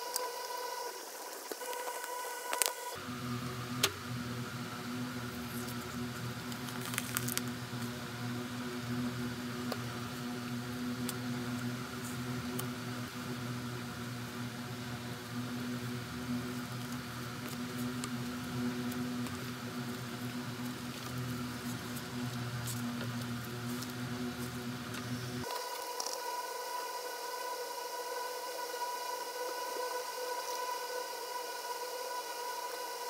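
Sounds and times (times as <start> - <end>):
steady low hum: 0.0 - 33.0
paper rustling: 6.5 - 7.6.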